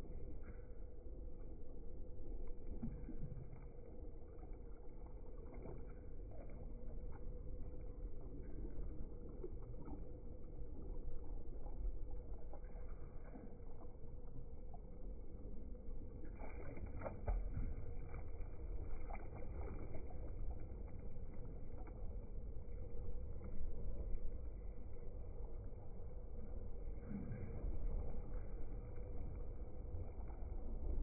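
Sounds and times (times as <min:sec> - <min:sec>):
water lapping around kayak: 0:00.0 - 0:31.0
paddle splashes: 0:16.3 - 0:20.9.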